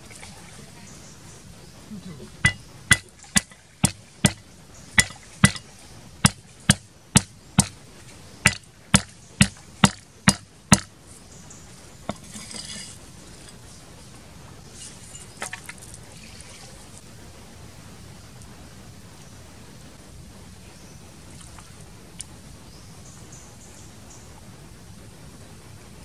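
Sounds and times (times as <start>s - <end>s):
cleaver striking chopping block: 2.4s - 4.4s, 5.0s - 7.8s, 8.5s - 10.9s.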